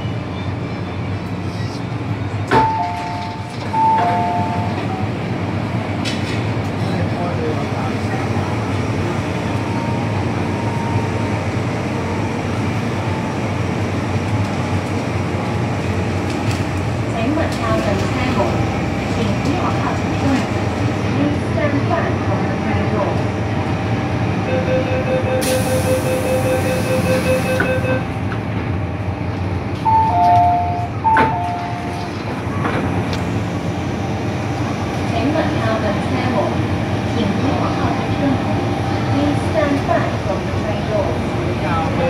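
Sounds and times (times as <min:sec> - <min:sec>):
train interior hum: 0:00.0 - 0:42.0
rapid door warning beeps: 0:24.5 - 0:28.0
train ventilation hum: 0:25.4 - 0:42.0.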